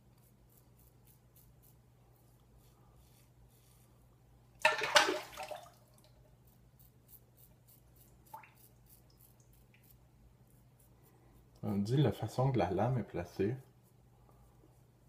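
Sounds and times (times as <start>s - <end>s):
razor scraping stubble: 0.0s - 4.0s, 6.4s - 15.0s
water splashing: 4.6s - 5.9s.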